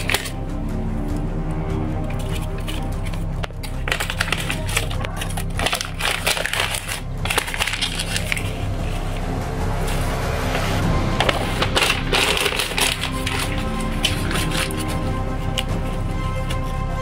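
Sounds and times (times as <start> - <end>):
close crackling and crunching: 0.0 - 1.2, 2.0 - 17.0.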